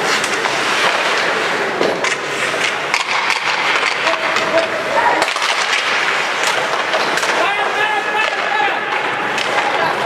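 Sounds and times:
hockey sticks clacking: 0.0s - 10.0s
skates scraping ice: 0.0s - 10.0s
stick knocking puck: 1.8s - 7.4s.

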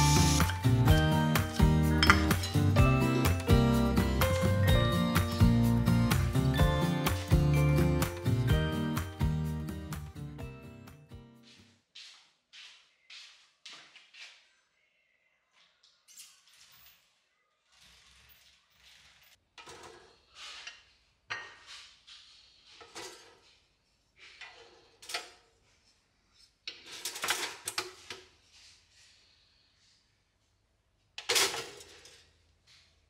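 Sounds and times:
dishes and utensils clinking: 0.0s - 8.4s.

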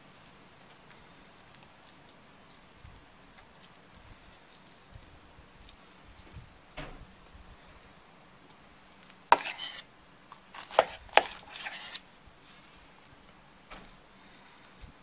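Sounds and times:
metal utensil scraping steel bowl: 9.4s - 9.8s, 10.5s - 12.0s.

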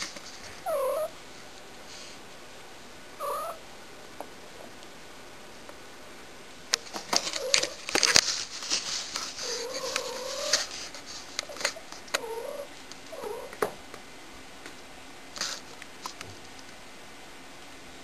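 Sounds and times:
rustling: 0.0s - 2.4s, 6.7s - 13.7s, 14.6s - 16.8s
cat yowling: 3.2s - 3.6s.

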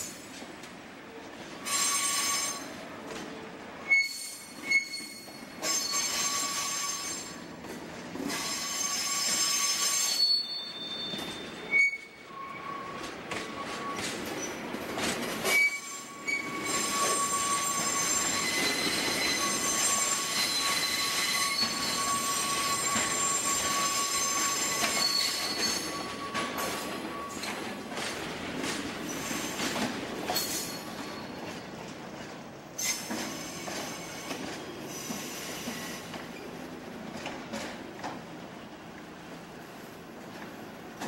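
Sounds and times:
train rolling rumble: 0.0s - 41.0s
train wheels squealing: 1.6s - 2.8s, 3.8s - 7.5s, 8.2s - 14.6s, 15.3s - 27.8s, 29.0s - 36.6s.

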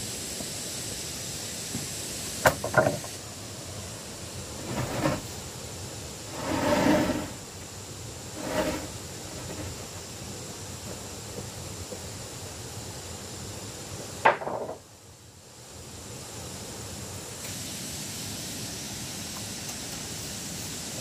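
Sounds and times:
wooden board scraping on wood: 4.6s - 5.3s, 6.3s - 7.4s, 8.4s - 9.8s.

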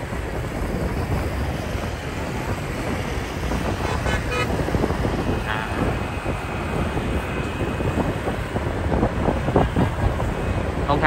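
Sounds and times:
road and traffic noise: 0.0s - 11.0s
wind rushing over microphone: 0.0s - 11.0s
short horn beep: 3.8s - 4.5s.

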